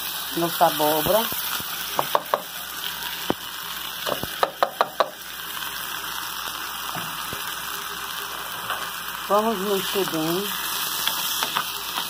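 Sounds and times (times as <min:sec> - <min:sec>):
food sizzling in oil: 0:00.0 - 0:12.0
bowl knocking on a pot: 0:04.1 - 0:05.2.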